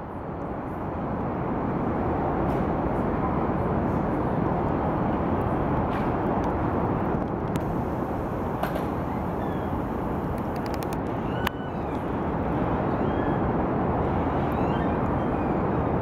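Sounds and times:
distant traffic: 0:00.0 - 0:16.0
faint clicks: 0:10.3 - 0:11.6.

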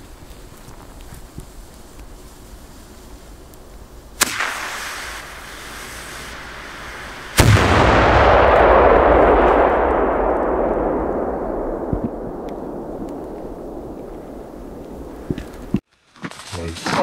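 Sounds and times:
firework blast: 0:04.2 - 0:15.8
long rumble: 0:07.4 - 0:15.7.

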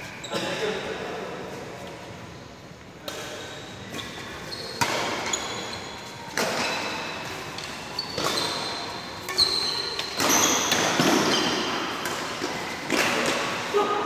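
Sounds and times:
shoes squeaking on court: 0:03.2 - 0:13.6
racket hitting shuttlecock: 0:04.8 - 0:05.4, 0:07.6 - 0:13.7.

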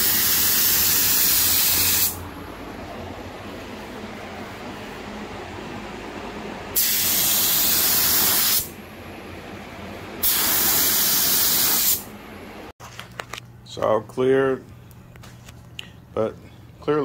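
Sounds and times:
spray gun hissing: 0:00.0 - 0:02.2, 0:06.8 - 0:08.7, 0:10.2 - 0:12.0.

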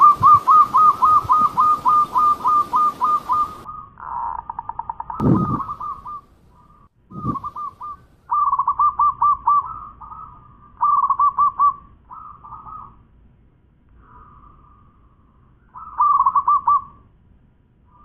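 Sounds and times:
dove cooing: 0:00.0 - 0:13.0, 0:15.8 - 0:17.0.

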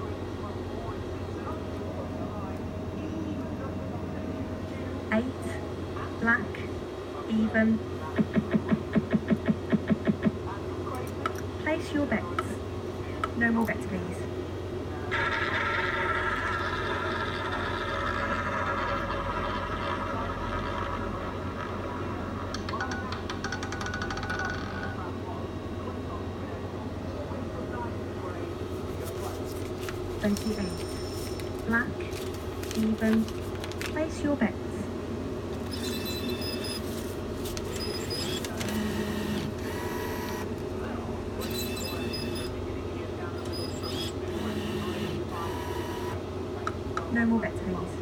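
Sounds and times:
banknote acceptor motor whirring: 0:35.6 - 0:36.9, 0:37.6 - 0:40.6, 0:41.4 - 0:42.5, 0:43.4 - 0:46.2.

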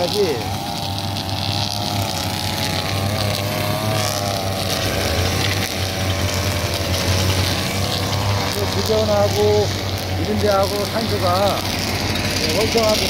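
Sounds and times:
brush cutters running: 0:00.0 - 0:13.0.

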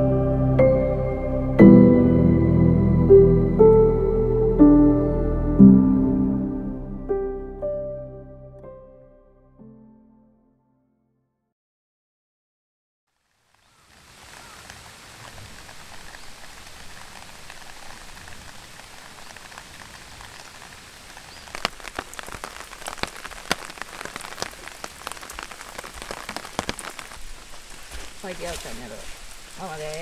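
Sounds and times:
steady rain hiss: 0:13.1 - 0:30.0
close raindrop hits: 0:13.5 - 0:30.0.

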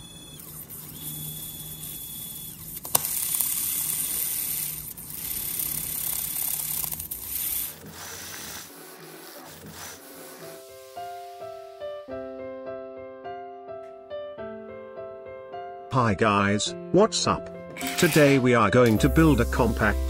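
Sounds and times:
stepper motor whirring: 0:00.0 - 0:11.8, 0:17.7 - 0:20.0.

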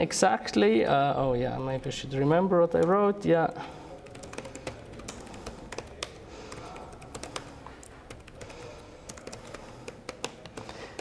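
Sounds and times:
laptop keyboard typing: 0:03.8 - 0:11.0.

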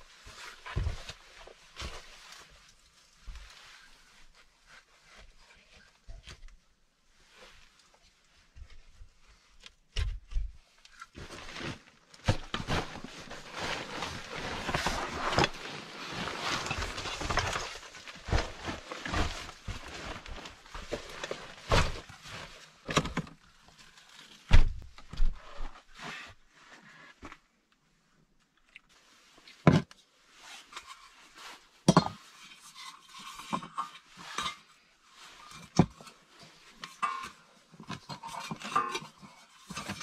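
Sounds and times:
backpack and clothing rustling: 0:11.2 - 0:22.8.

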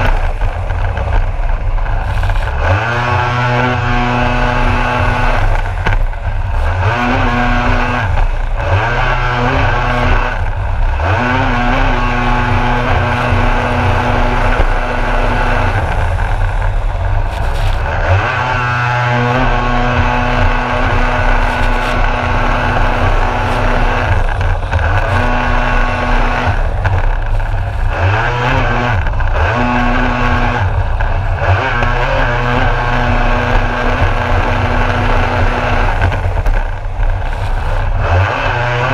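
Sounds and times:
jet ski engine revving: 0:00.0 - 0:38.9
water spray hissing: 0:19.4 - 0:28.2.

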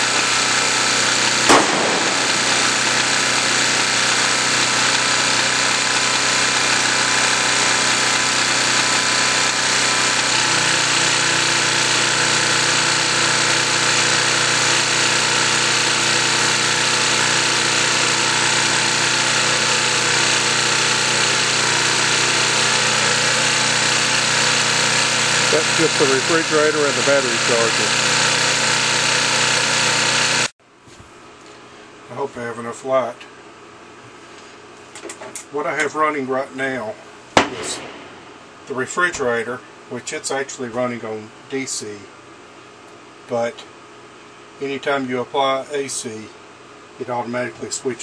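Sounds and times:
portable generator engine running: 0:00.0 - 0:30.5.

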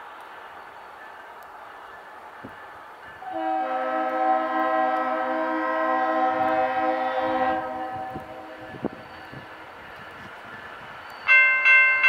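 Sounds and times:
locomotive air horn blast: 0:03.2 - 0:08.7.

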